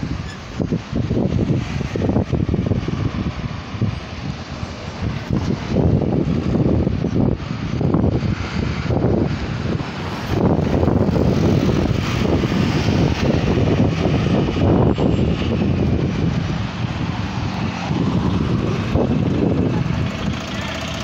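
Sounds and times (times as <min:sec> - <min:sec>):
cars driving by: 0:00.0 - 0:21.0
motor scooter driving by: 0:17.7 - 0:21.0.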